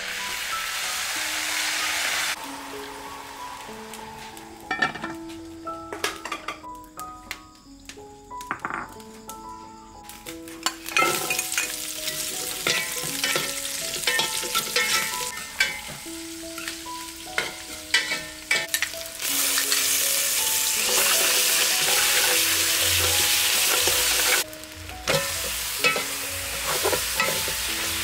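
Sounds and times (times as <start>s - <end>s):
aromatics sizzling in hot oil: 0.0s - 6.9s, 10.0s - 28.0s
metal ladle scraping pot: 25.1s - 27.7s.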